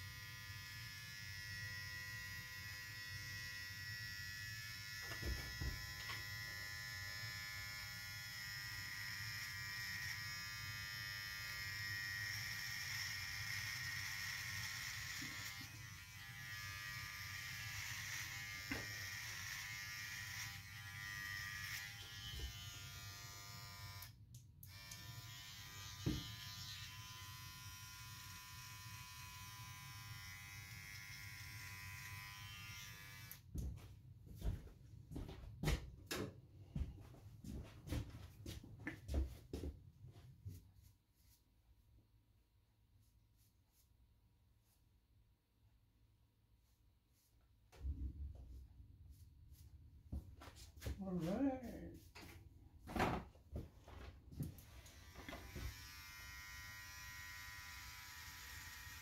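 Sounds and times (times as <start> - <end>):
electric hair trimmer buzzing: 0.0 - 33.5, 54.5 - 59.0.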